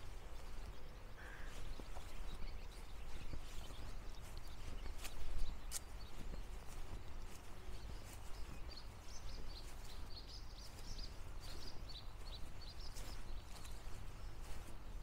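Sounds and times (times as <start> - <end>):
songbird singing: 0.0 - 15.0.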